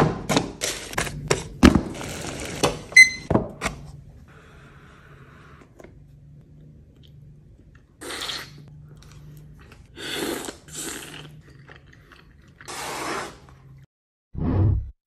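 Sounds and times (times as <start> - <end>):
loud slurps: 12.6 - 13.6.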